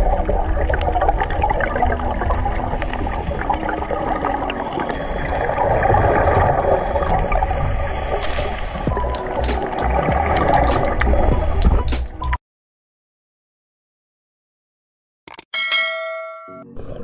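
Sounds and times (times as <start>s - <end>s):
low rumble of water: 0.0s - 11.9s
underwater bubbles gurgling: 0.0s - 11.9s.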